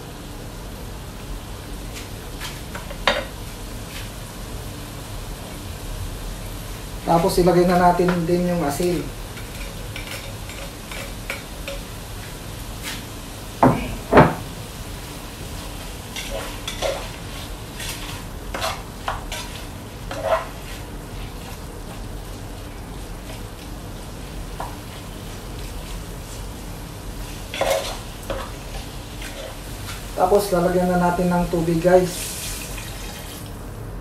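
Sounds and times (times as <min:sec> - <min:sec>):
meat sizzling in a pot: 0:00.0 - 0:33.8
loud knocks against pot: 0:13.6 - 0:14.5
utensil stirring and scraping: 0:15.6 - 0:21.7.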